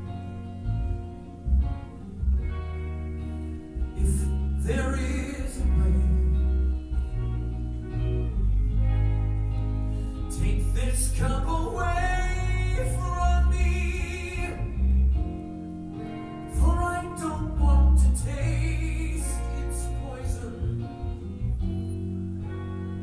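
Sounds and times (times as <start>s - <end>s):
deep sustained bass: 0.0s - 15.7s
guitar: 0.0s - 23.0s
man singing a slow rock ballad: 3.8s - 7.2s, 10.2s - 15.2s, 16.4s - 21.4s.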